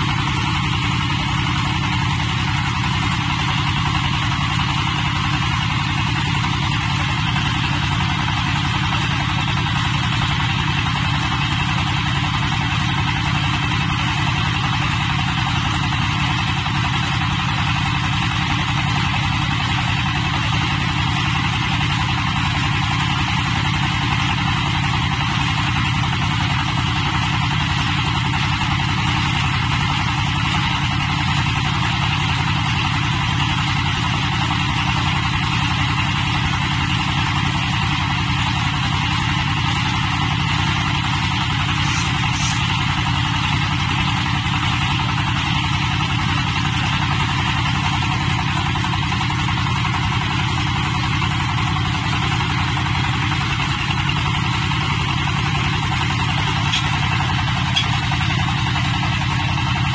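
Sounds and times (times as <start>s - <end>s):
diesel engine running: 0.0s - 59.9s
drilling rig drilling: 0.0s - 59.9s.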